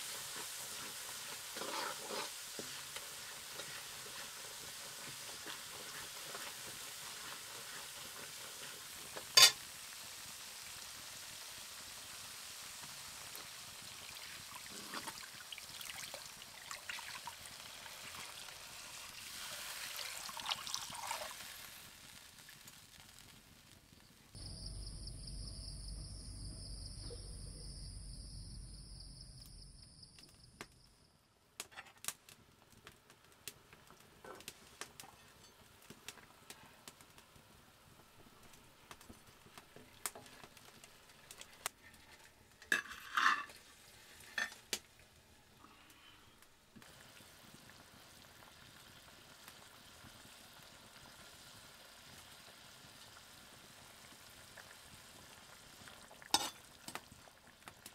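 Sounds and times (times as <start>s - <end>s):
curry sizzling in pan: 0.0s - 24.4s, 33.5s - 57.9s
metal spoon scraping pan: 1.3s - 4.4s, 9.4s - 9.6s, 42.7s - 43.6s, 56.4s - 56.6s.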